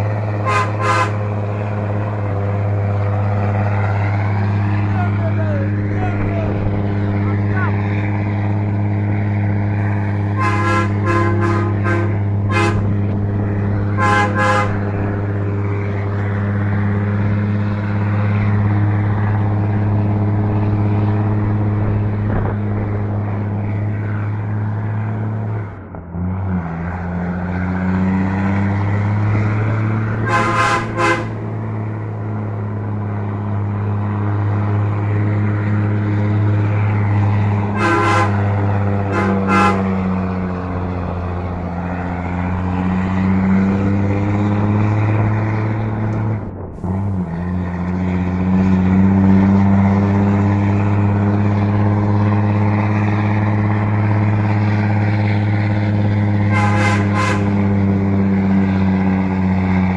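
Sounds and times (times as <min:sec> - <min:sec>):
truck diesel engine drone: 0:00.0 - 0:59.9
truck horn toots: 0:00.4 - 0:01.4, 0:10.2 - 0:13.2, 0:13.8 - 0:15.1, 0:29.8 - 0:31.4, 0:37.7 - 0:40.2, 0:56.4 - 0:57.8.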